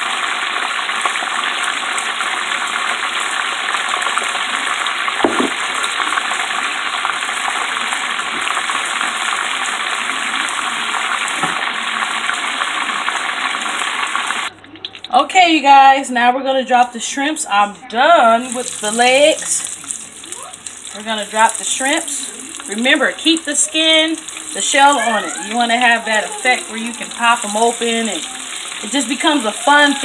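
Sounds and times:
oil sizzling and bubbling: 0.0s - 15.2s, 18.3s - 30.0s
dull bump: 5.2s - 5.7s.

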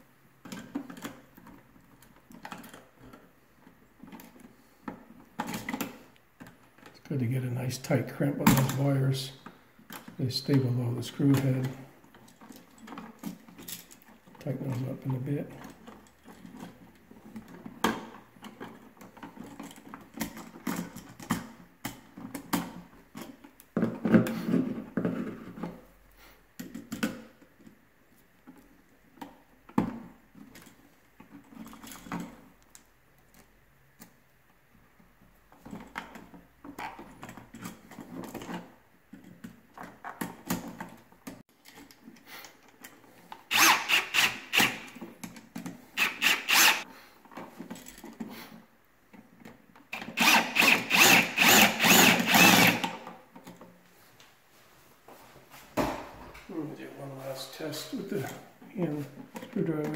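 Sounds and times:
power drill running: 43.5s - 45.0s, 46.0s - 46.8s, 50.0s - 53.0s.

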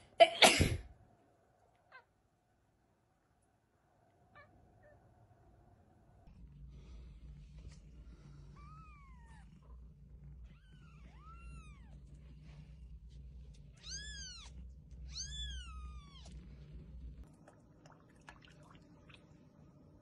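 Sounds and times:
low rumble: 6.3s - 17.3s.

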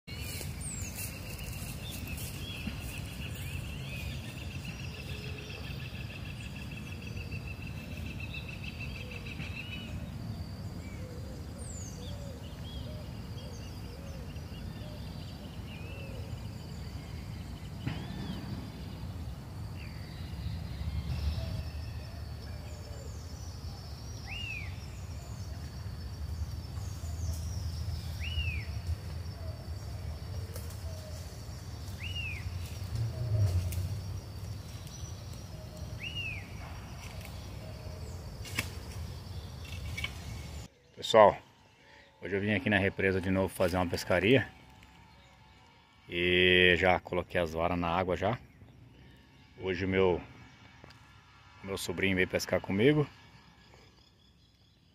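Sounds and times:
soft bird calls: 0.1s - 51.1s
low rumble: 16.4s - 24.1s.

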